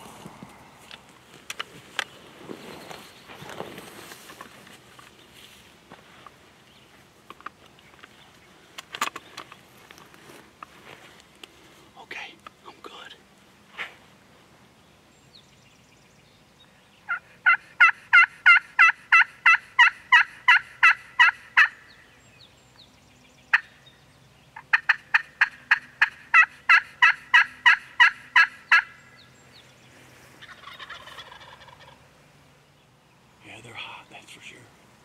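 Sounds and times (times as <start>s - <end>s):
turkey call yelps: 17.1s - 21.8s, 24.6s - 29.0s, 30.4s - 32.0s.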